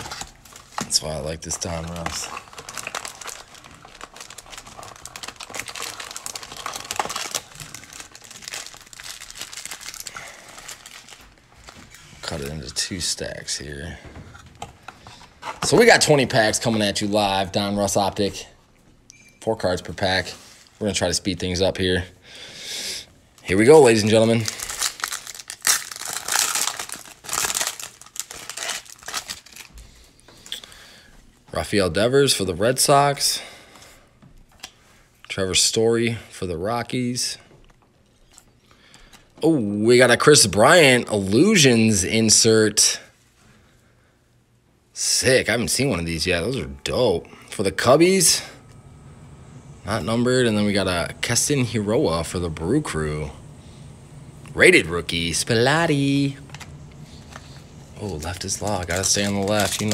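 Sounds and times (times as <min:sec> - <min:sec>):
foil packs crinkling: 0:00.0 - 0:13.1, 0:23.4 - 0:30.9, 0:54.4 - 0:59.9.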